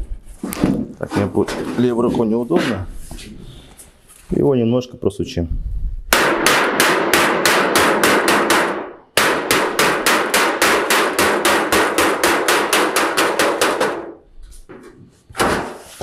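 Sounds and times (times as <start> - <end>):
rubber mallet tapping sheet metal: 6.1 - 14.2.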